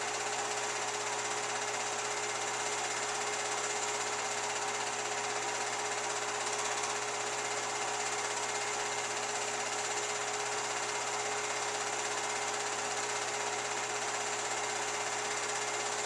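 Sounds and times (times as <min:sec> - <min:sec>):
film projector whirring: 0:00.0 - 0:16.0.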